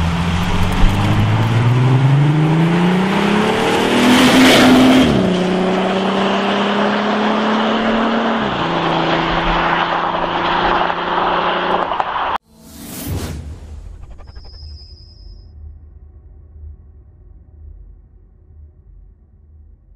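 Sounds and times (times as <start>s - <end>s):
car accelerating past: 0.0s - 12.4s.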